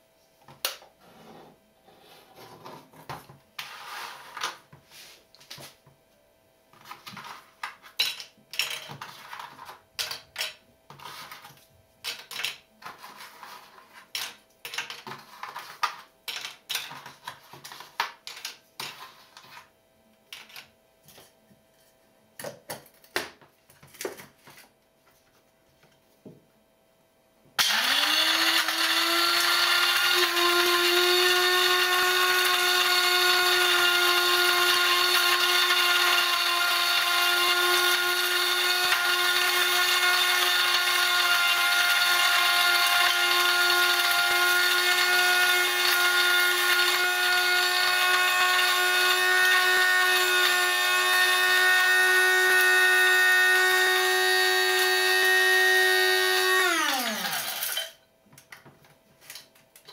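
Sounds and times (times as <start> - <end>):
coffee grinder motor whining: 27.6 - 58.0.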